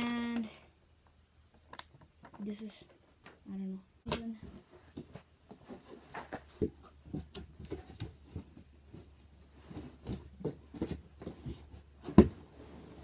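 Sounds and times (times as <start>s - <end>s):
foam and cardboard rustling: 4.4s - 13.0s.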